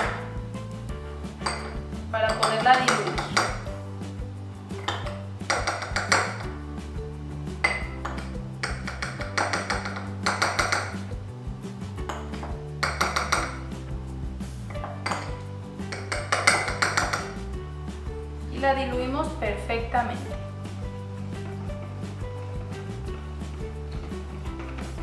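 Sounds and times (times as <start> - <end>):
background music: 0.0 - 25.0
spoon clinking on glass bowls: 1.4 - 3.6.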